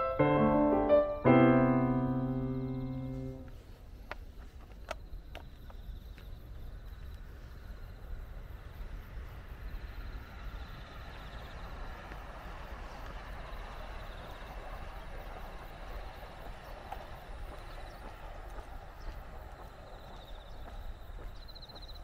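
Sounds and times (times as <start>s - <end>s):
faint high pulsing trill: 0.0s - 3.5s
outdoor rush with low rumble: 0.0s - 22.0s
footsteps on pavement: 2.2s - 9.0s, 11.0s - 22.0s.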